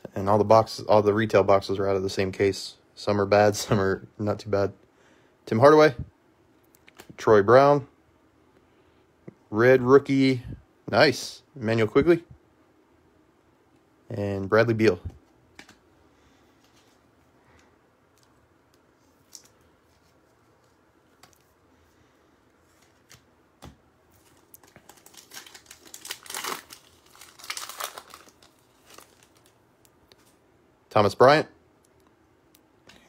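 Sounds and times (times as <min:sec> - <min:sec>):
foil wrapper crinkling and tearing: 0:24.2 - 0:29.6.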